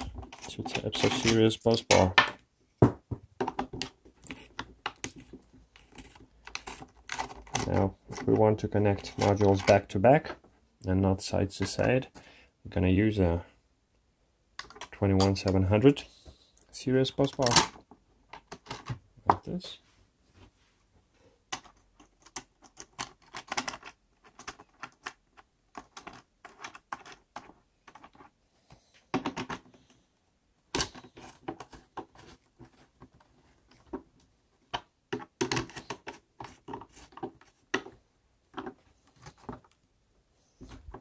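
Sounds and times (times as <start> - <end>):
small metal clicks and rattles: 21.5 - 28.3.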